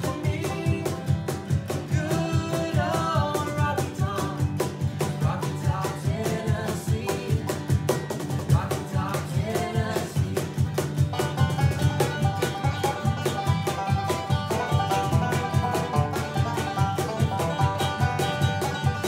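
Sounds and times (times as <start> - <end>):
person singing: 0.0 - 7.6, 8.4 - 10.8
bluegrass band playing: 0.0 - 19.0.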